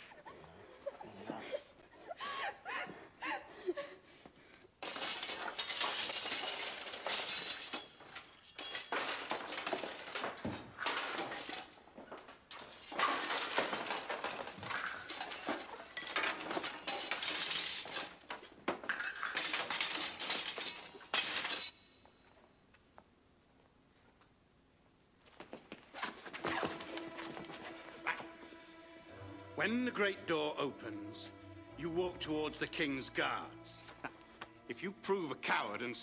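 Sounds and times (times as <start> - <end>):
metal clattering and crashing: 4.8 - 22.0, 26.1 - 28.5.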